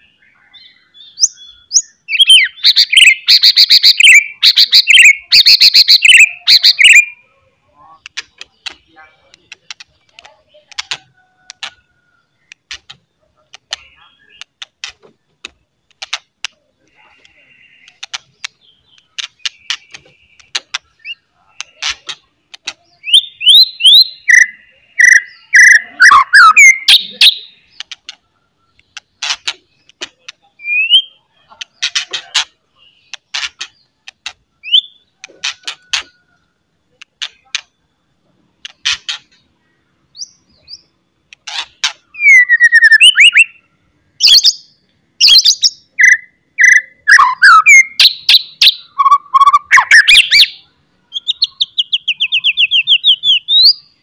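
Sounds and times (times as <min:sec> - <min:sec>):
bird whistled phrases: 0:01.0 - 0:07.2, 0:23.0 - 0:27.6, 0:30.6 - 0:31.2, 0:42.0 - 0:44.6, 0:45.2 - 0:53.9.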